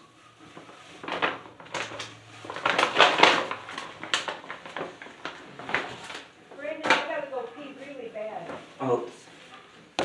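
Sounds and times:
plastic bag crinkling: 0:00.6 - 0:06.4.

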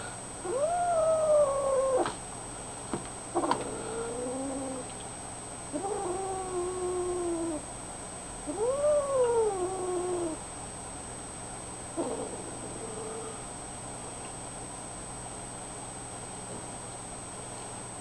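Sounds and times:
kittens meowing: 0:00.4 - 0:02.2, 0:05.8 - 0:07.6, 0:08.5 - 0:10.4.

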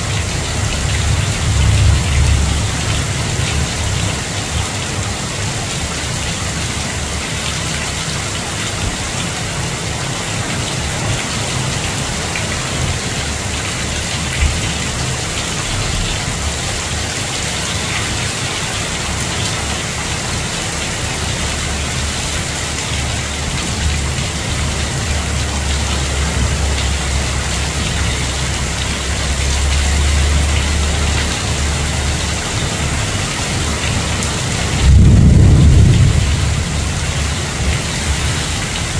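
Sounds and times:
heavy rain through foliage: 0:00.0 - 0:38.9
low rumble: 0:34.7 - 0:38.3.

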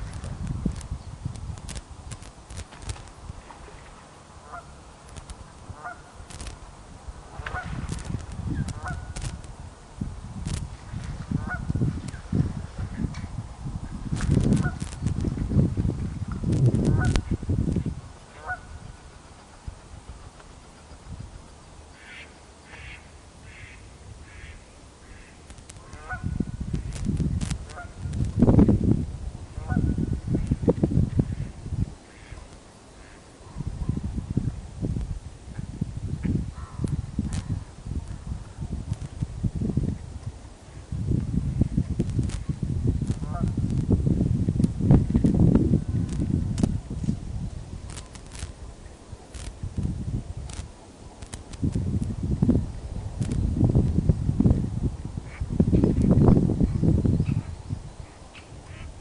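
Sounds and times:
wind on microphone: 0:00.0 - 0:59.0
geese honking: 0:04.4 - 0:04.7, 0:05.8 - 0:06.1, 0:08.8 - 0:09.2, 0:18.4 - 0:18.8, 0:22.0 - 0:26.3.

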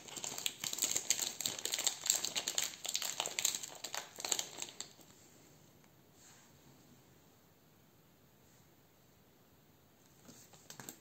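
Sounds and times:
plastic bag crinkling: 0:00.0 - 0:05.1.

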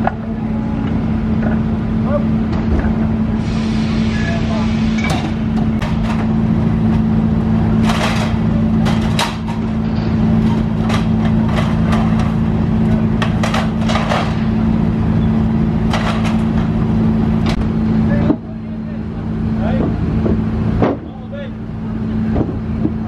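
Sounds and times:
engine running: 0:00.0 - 0:23.0
metal clanks and knocks: 0:05.0 - 0:07.0, 0:07.7 - 0:14.6, 0:15.8 - 0:16.8, 0:19.7 - 0:21.2.

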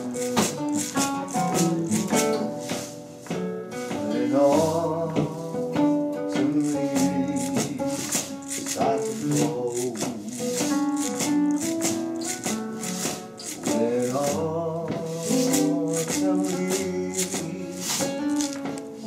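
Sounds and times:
man singing: 0:00.0 - 0:02.8, 0:03.9 - 0:19.0
acoustic guitars strummed: 0:00.0 - 0:19.0.

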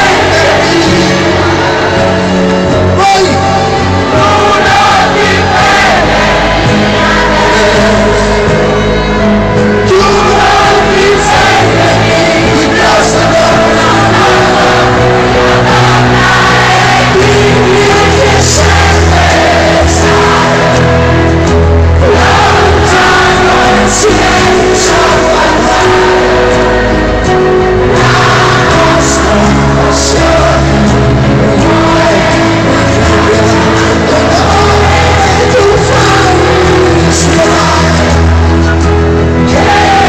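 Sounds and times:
crowd singing and cheering: 0:00.0 - 0:40.0
live rock band playing: 0:00.0 - 0:40.0
person singing: 0:00.0 - 0:40.0.

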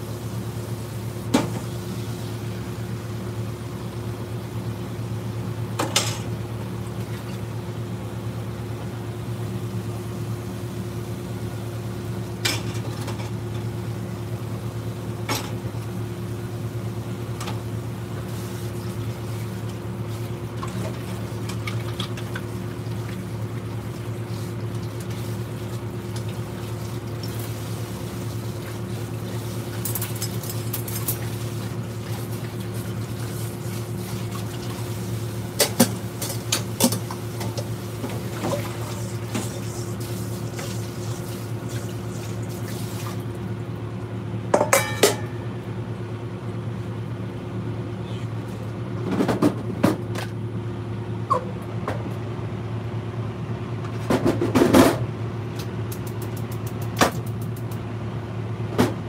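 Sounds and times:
patties sizzling hum and hiss: 0:00.0 - 0:59.0
kitchenware clinking: 0:44.6 - 0:45.4.

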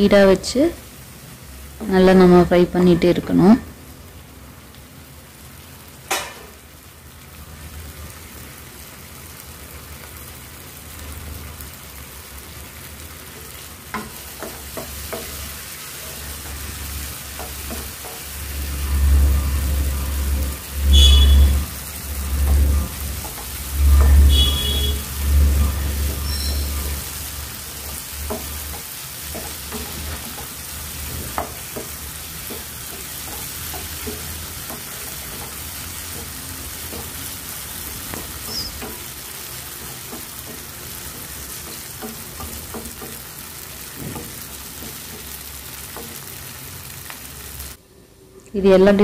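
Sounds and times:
food sizzling in oil: 0:00.0 - 0:47.8
spatula scraping and knocking pan: 0:13.3 - 0:47.2.

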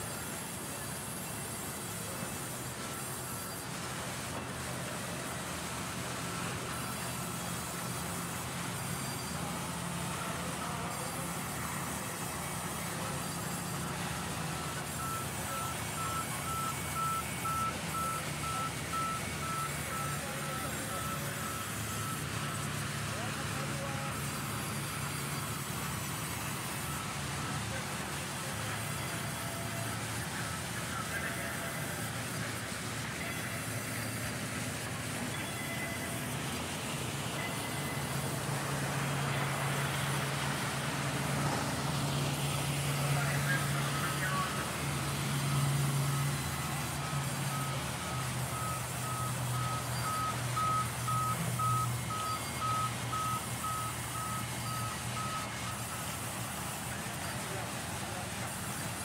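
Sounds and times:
short electronic beeps: 0:06.4 - 0:27.6, 0:28.8 - 0:36.4, 0:37.2 - 0:40.2, 0:45.3 - 0:56.2.

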